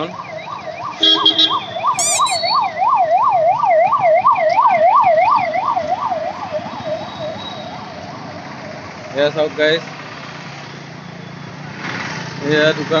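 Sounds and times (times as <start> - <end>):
ambulance siren yelping: 0.0 - 8.9
street traffic: 0.0 - 13.0.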